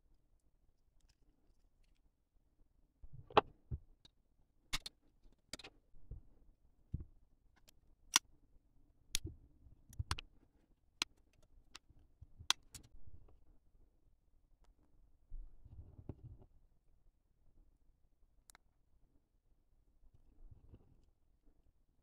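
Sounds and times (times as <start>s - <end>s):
plastic parts clicking and snapping: 4.7s - 4.9s, 9.9s - 10.2s, 12.4s - 12.9s.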